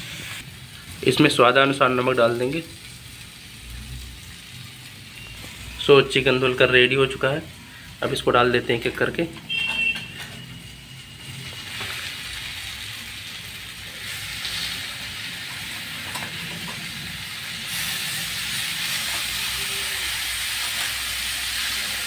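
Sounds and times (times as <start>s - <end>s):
chicken sizzling in hot oil: 0.0s - 22.0s.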